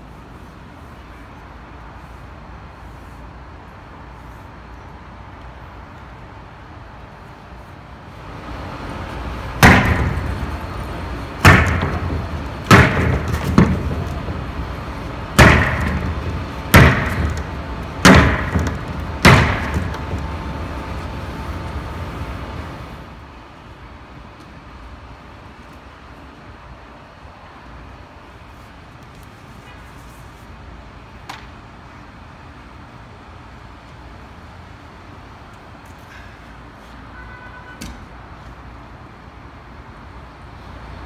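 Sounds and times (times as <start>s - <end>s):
tool striking wall panels: 9.5s - 21.2s.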